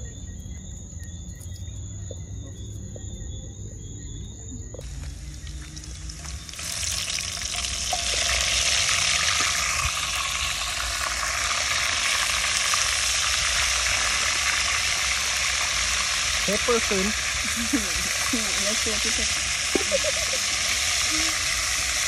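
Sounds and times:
shrimp sizzling in a pan: 4.8 - 22.0.

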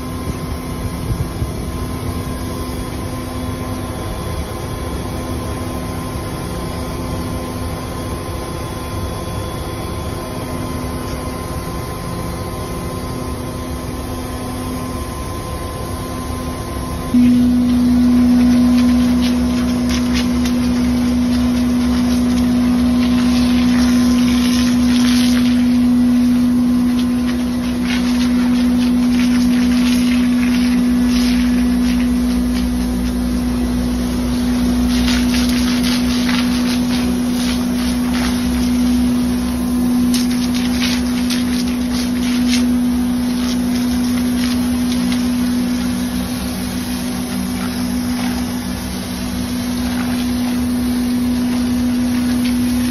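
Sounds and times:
hose spraying water hissing: 17.2 - 52.9
truck engine humming: 17.2 - 52.9.

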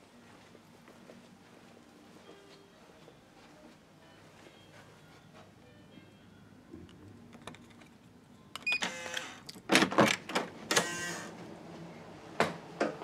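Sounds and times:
door lock electronic beep: 8.6 - 9.2.

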